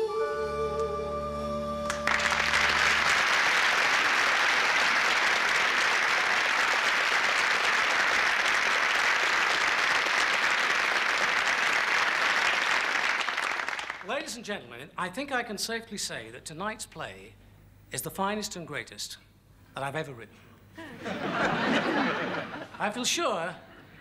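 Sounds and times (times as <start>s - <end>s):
held music chord: 0.0s - 3.1s
audience applause: 1.9s - 14.1s.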